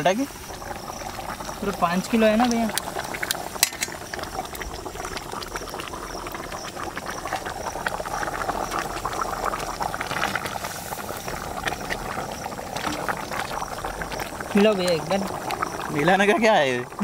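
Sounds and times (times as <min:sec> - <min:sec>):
gravy bubbling and popping: 0:00.0 - 0:17.0.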